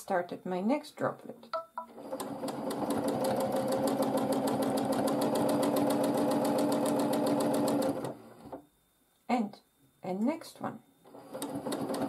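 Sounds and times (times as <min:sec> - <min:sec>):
sewing machine stitching: 0:01.9 - 0:08.6, 0:11.1 - 0:12.0.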